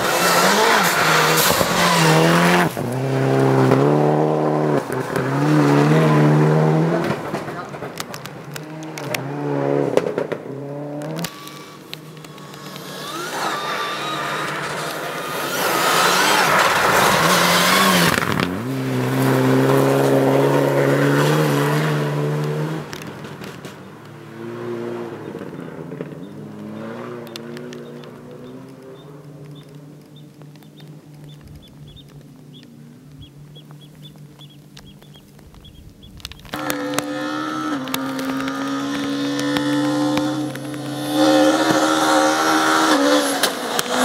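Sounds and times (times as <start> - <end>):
rally car engine passing at speed: 0.0 - 30.0, 36.5 - 44.0.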